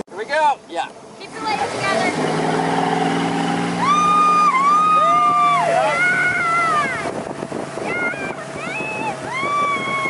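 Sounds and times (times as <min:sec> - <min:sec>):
motorboat engine running: 0:00.1 - 0:10.0
people cheering woo: 0:03.8 - 0:07.0, 0:07.9 - 0:10.0.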